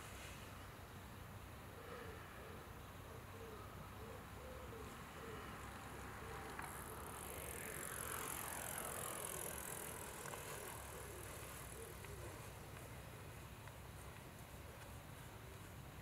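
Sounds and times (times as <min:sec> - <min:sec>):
vehicle passing by: 0:04.9 - 0:13.5.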